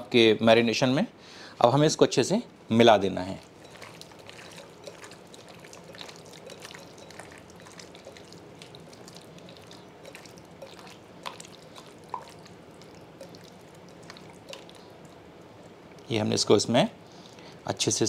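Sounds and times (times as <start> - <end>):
hand squishing wet meat: 3.2 - 16.1.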